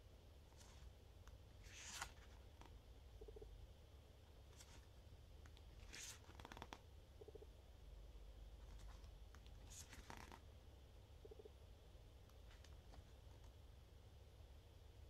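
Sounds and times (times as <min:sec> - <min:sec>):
pages being turned: 0:00.5 - 0:00.9, 0:01.6 - 0:02.7, 0:04.6 - 0:04.9, 0:05.8 - 0:06.8, 0:08.6 - 0:10.4.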